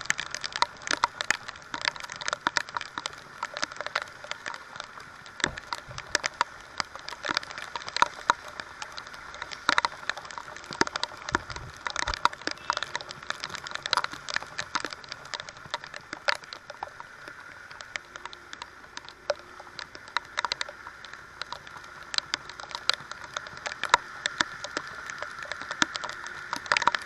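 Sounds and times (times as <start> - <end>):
raindrops tapping on camera: 0.0 - 27.0.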